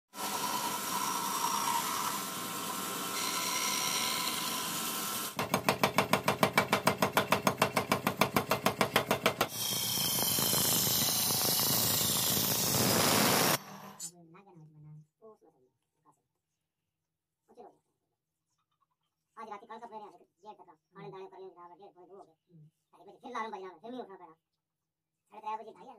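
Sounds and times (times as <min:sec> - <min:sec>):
band saw cutting wood: 0:00.1 - 0:05.4, 0:09.5 - 0:14.1
grinding wheel hiss: 0:09.6 - 0:14.0.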